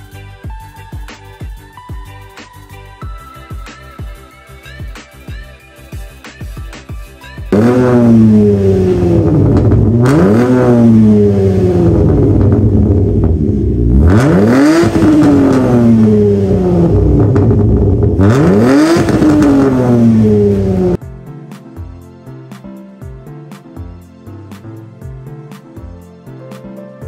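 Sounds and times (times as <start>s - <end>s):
car engine revving: 7.5s - 21.0s.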